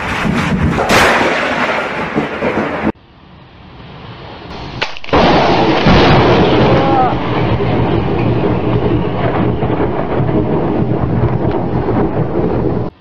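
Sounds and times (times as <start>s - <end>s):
thunder crack: 0.0s - 3.0s, 4.5s - 13.0s
thunderclap: 0.0s - 3.0s, 4.5s - 13.0s
thunder rumbling: 0.0s - 3.5s, 4.1s - 13.0s.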